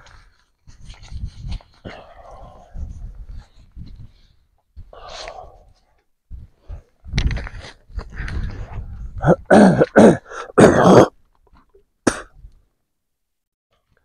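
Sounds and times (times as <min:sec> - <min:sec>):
man coughing: 0:09.2 - 0:11.1.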